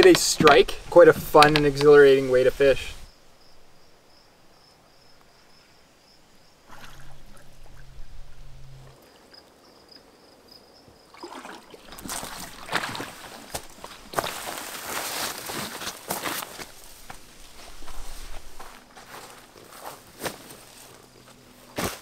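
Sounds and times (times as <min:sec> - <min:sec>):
high insect drone: 0:01.6 - 0:11.2
paddle strokes in water: 0:06.7 - 0:09.4, 0:11.2 - 0:18.6.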